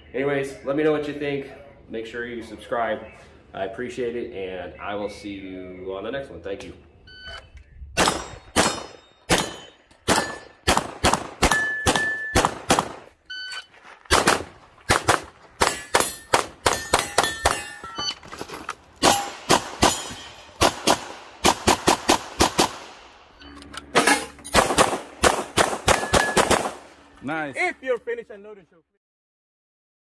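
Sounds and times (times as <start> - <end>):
steel targets ringing: 8.0 - 10.7, 11.5 - 12.4, 15.6 - 18.2, 19.0 - 20.6, 23.3 - 24.6, 25.8 - 26.6
rapid pistol shots: 8.0 - 13.1, 14.1 - 17.6, 19.0 - 23.1, 24.0 - 26.9.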